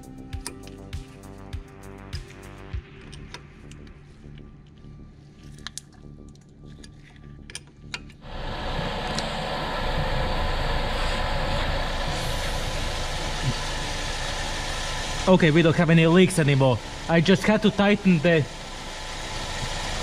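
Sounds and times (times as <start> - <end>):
car engine idling: 8.2 - 20.0.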